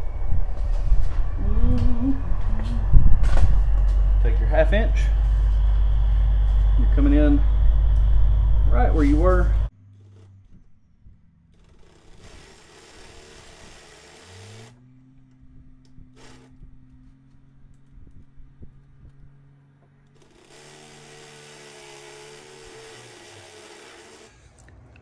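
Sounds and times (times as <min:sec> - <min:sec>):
electric drill boring into steel: 0:11.6 - 0:14.8, 0:16.1 - 0:16.5, 0:20.2 - 0:24.5.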